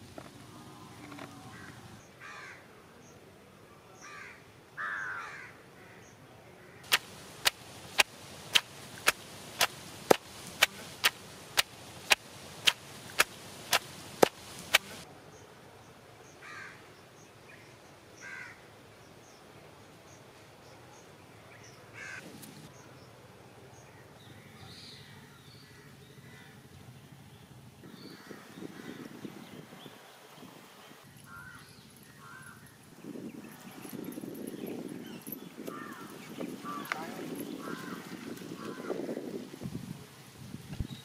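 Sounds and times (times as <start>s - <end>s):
crows cawing: 1.1s - 2.7s, 4.0s - 7.2s, 16.4s - 16.8s, 18.2s - 18.6s, 22.0s - 22.2s, 25.7s - 26.6s, 31.2s - 32.6s, 35.6s - 39.0s.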